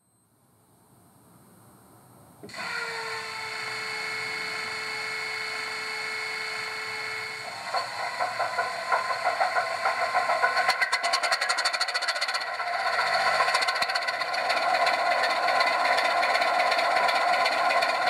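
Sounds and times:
steady whine from small speaker: 0.0 - 18.0
diesel engine firing with uneven beats: 7.4 - 18.0.

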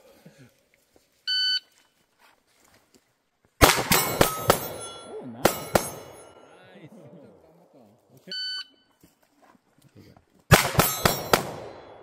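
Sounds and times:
electronic timer beep: 1.3 - 1.7, 8.3 - 8.9
pistol shots: 3.6 - 6.4, 10.5 - 12.0
steel targets ringing: 3.6 - 6.6, 10.6 - 12.0.

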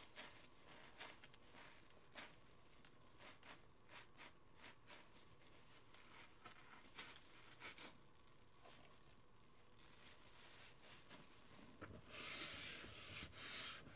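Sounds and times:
soap foam squishing and swishing: 0.0 - 8.0.

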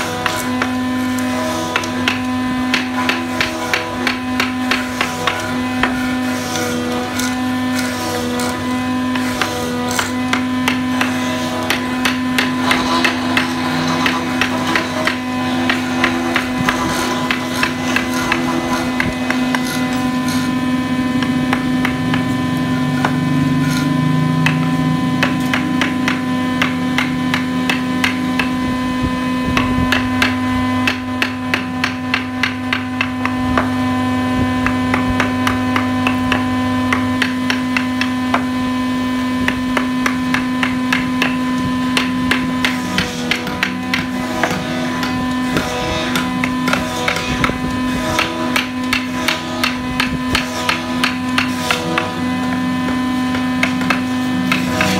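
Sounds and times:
steady hum: 0.0 - 54.9
chisel tapping wood: 1.8 - 6.0, 9.1 - 20.4, 23.0 - 23.8, 24.4 - 28.5, 29.6 - 33.7, 34.6 - 38.5, 39.8 - 41.4, 42.0 - 52.2, 52.9 - 54.9.

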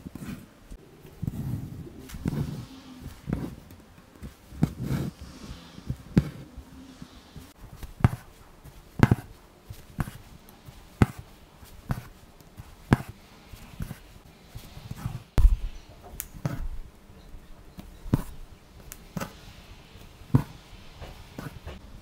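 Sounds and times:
thread hissing through fabric: 0.1 - 16.9
needle tapping through fabric: 7.7 - 14.0.

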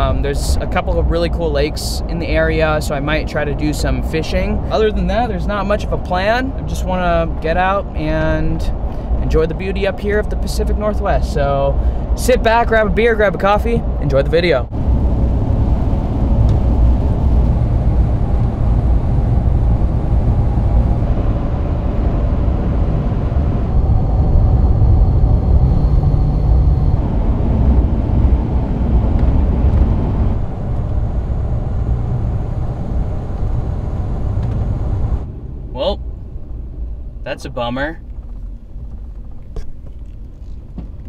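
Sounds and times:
engine and road rumble in cab: 0.0 - 41.0.

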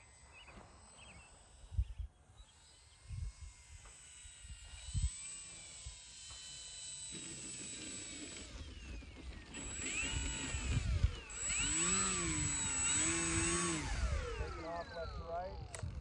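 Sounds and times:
model plane motor whining: 0.0 - 16.0.

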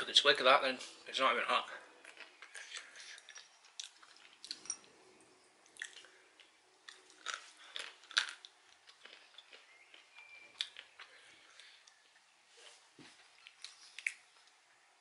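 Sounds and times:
peanuts crunching while chewed: 2.0 - 12.1.

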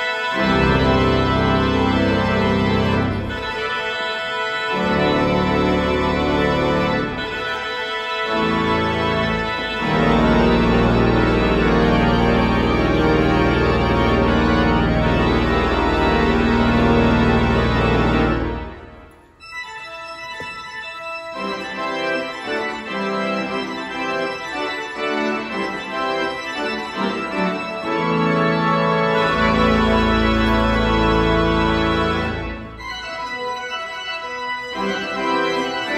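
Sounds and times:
pipe organ playing: 0.0 - 35.9
deep organ pedal bass: 0.4 - 3.6, 4.8 - 7.6, 8.3 - 19.1, 21.3 - 33.2.

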